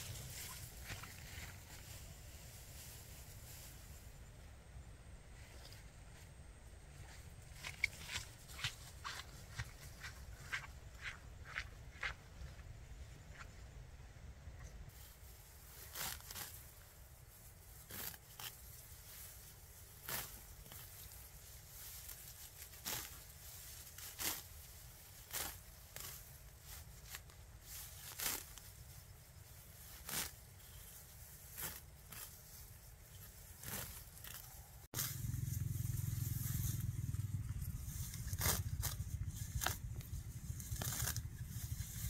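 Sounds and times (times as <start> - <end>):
low steady rumble: 0.0 - 18.0, 32.1 - 42.0.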